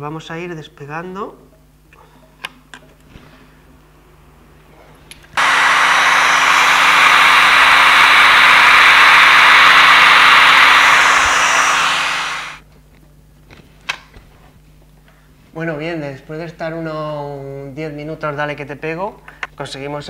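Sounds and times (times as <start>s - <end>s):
hair dryer blowing: 5.4s - 12.6s.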